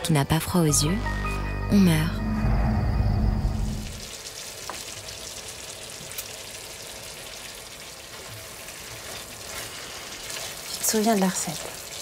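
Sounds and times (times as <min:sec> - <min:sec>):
food sizzling in a pan: 0:03.6 - 0:12.0
small crackles: 0:04.0 - 0:12.0.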